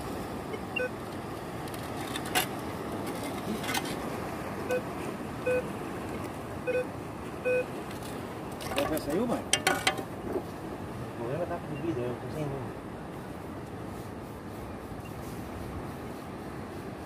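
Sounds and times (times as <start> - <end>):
steady background noise: 0.0 - 17.0
metal detector beeps: 4.7 - 5.7, 6.6 - 7.7.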